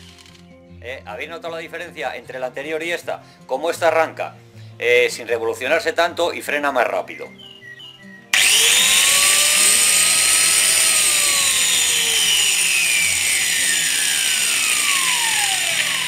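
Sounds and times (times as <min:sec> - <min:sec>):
angle grinder motor whine: 0:08.3 - 0:16.0.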